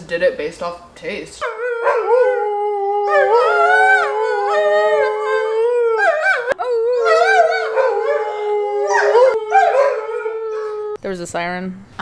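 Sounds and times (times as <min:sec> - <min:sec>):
dogs howling: 0:01.4 - 0:11.0.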